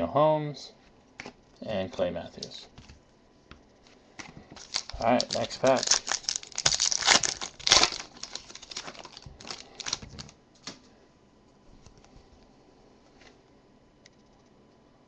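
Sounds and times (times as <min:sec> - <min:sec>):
foil wrapper crinkling and tearing: 0:04.6 - 0:10.3.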